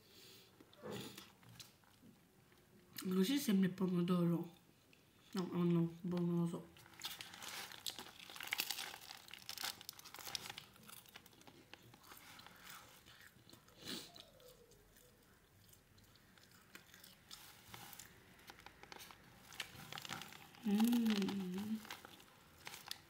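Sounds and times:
bread crust crunching: 6.8 - 13.4, 14.1 - 23.0
close mouth chewing sounds: 9.6 - 23.0.

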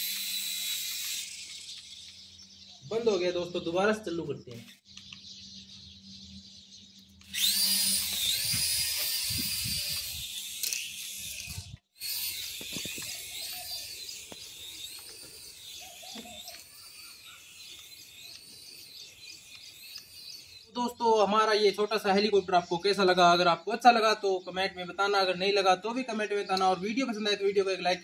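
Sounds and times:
toy helicopter motor whine: 0.0 - 2.6, 7.1 - 20.8.

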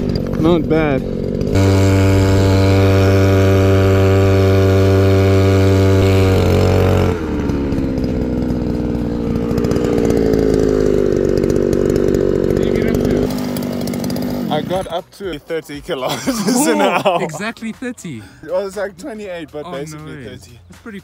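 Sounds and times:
two-stroke scooter engine running: 0.0 - 15.4.

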